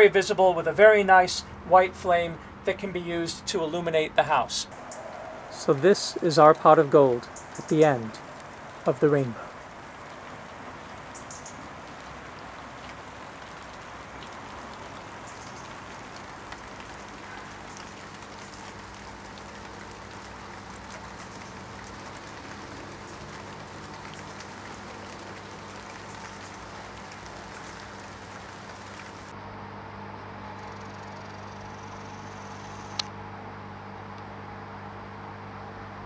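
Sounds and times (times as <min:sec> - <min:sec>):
steady rain hiss: 0:00.0 - 0:29.4, 0:30.7 - 0:33.1
raindrop ticks: 0:04.7 - 0:29.3.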